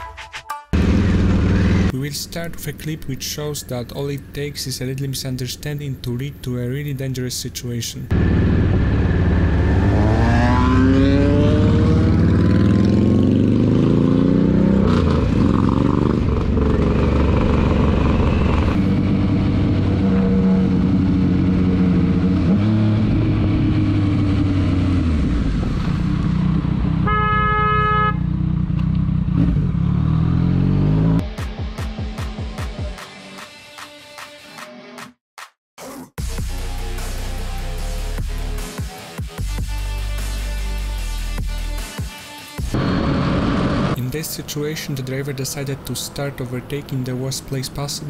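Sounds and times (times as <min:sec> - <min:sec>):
motorcycle engine revving: 0:00.8 - 0:02.0, 0:08.1 - 0:31.2, 0:42.6 - 0:44.0
motorcycle running steadily: 0:00.8 - 0:02.2, 0:08.1 - 0:31.2
car horn blaring: 0:27.0 - 0:28.3.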